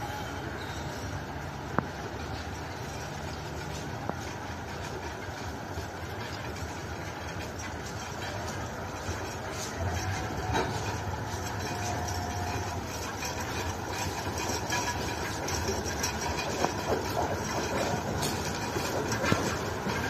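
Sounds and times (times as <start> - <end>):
diesel locomotive engine rumbling: 0.0 - 20.0.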